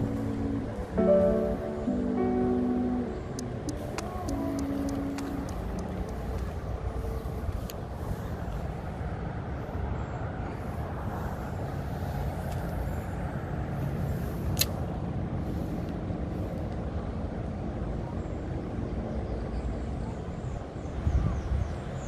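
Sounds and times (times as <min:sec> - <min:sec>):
distant road traffic rumble: 0:00.0 - 0:22.0
sharp click: 0:03.3 - 0:06.2, 0:14.6 - 0:14.8.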